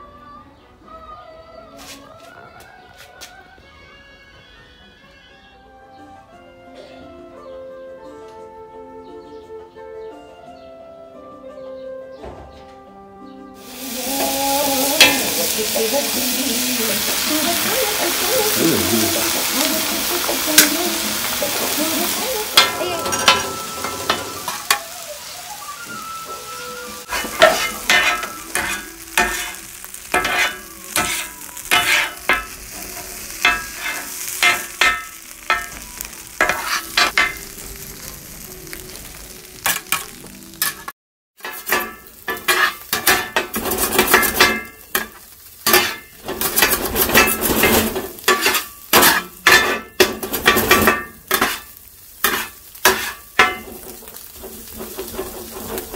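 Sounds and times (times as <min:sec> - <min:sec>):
frying sizzle: 0:13.6 - 0:55.9
metal blades clanging on griddle: 0:13.7 - 0:25.3, 0:26.0 - 0:55.9.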